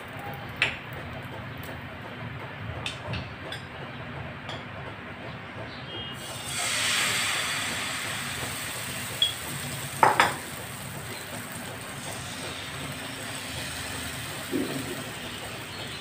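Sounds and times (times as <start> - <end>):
batter sizzling in hot pan: 6.2 - 16.0.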